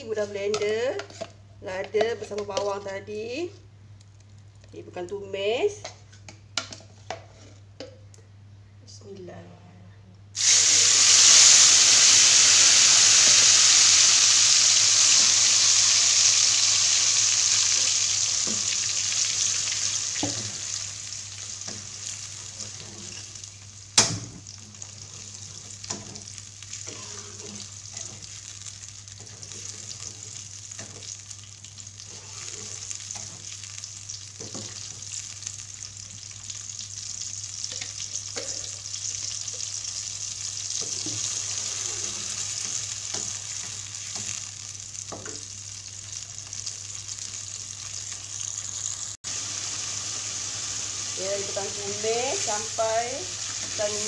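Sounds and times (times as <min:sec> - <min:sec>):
spatula scraping a wok: 0:00.6 - 0:01.4, 0:07.0 - 0:07.7, 0:24.9 - 0:28.4, 0:29.2 - 0:31.2, 0:32.0 - 0:33.6, 0:40.8 - 0:44.3
paste sizzling in hot oil: 0:10.4 - 0:54.0.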